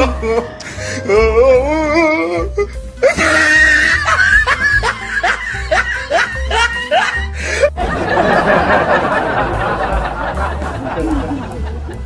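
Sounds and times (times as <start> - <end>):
woman laughing: 3.2 - 12.0
background music with bass beat: 6.4 - 12.0.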